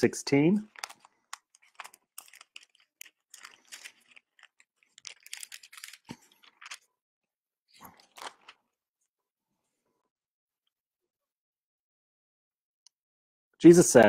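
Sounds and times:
pages rustling and flicking: 0:00.7 - 0:06.9, 0:07.8 - 0:08.6.

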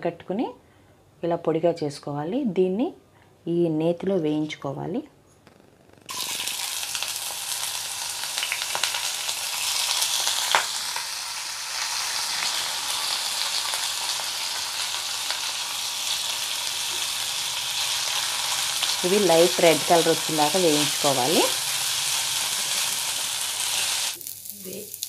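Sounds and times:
rice sizzling in hot fat: 0:06.1 - 0:25.0.

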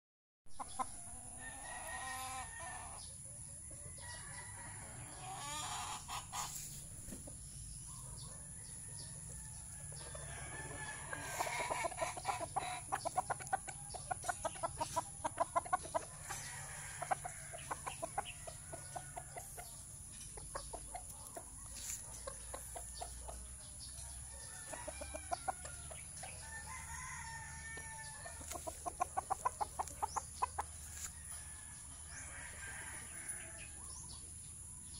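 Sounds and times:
chickens clucking: 0:00.6 - 0:34.9
rooster crowing: 0:03.8 - 0:05.9, 0:08.5 - 0:11.8, 0:24.2 - 0:28.6, 0:30.9 - 0:33.8.

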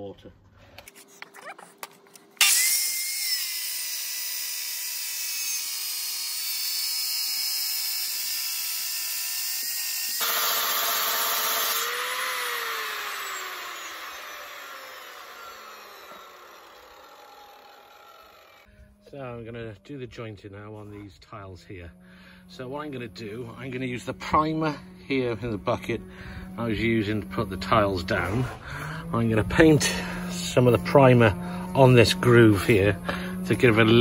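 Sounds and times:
circular saw cutting tile: 0:02.4 - 0:18.7
saw blade winding down: 0:02.4 - 0:18.7, 0:22.5 - 0:34.0.

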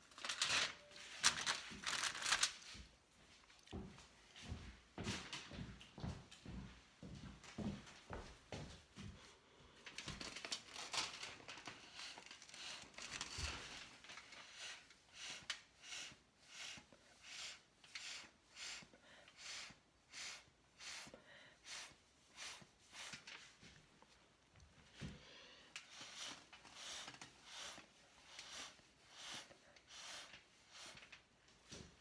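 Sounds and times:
puffs of breath through a straw: 0:11.8 - 0:23.2, 0:25.1 - 0:31.1.

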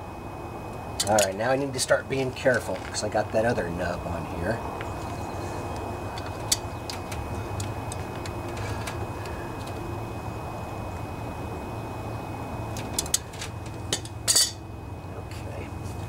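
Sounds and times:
steady low rumble: 0:00.0 - 0:16.0
pliers clicking on metal: 0:01.0 - 0:01.4.

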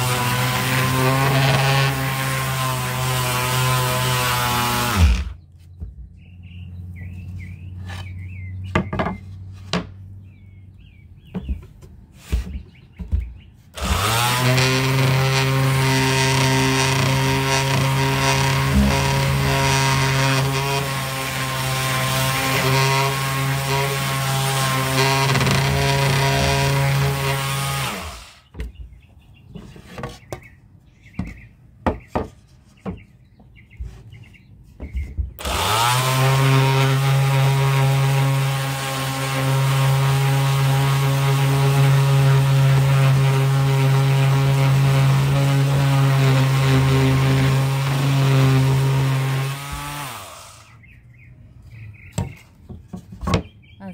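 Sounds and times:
electric sander humming: 0:00.0 - 0:05.4, 0:13.8 - 0:28.4, 0:35.4 - 0:50.7.

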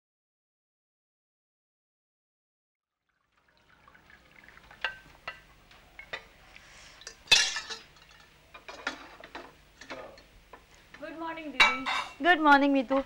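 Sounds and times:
tea pouring into cup: 0:03.0 - 0:07.2
pan clattering onto stove: 0:07.1 - 0:10.3, 0:11.6 - 0:12.2.

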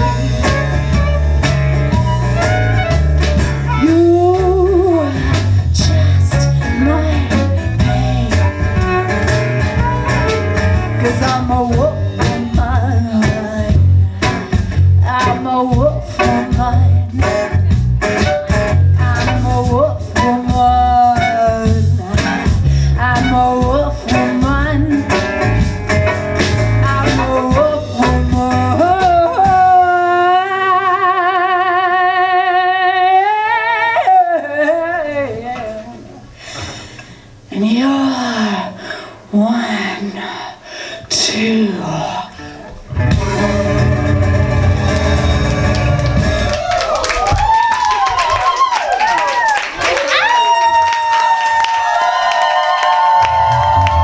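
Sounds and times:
folk band playing: 0:00.0 - 0:30.4, 0:42.3 - 0:47.6
woman singing: 0:03.7 - 0:09.1, 0:10.9 - 0:17.8, 0:18.9 - 0:25.4, 0:26.8 - 0:36.2, 0:37.5 - 0:42.5.

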